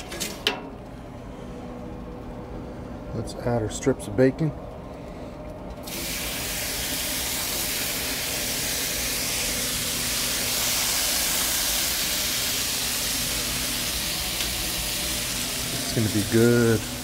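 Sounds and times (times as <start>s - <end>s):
bacon sizzling on a griddle: 5.8s - 17.0s.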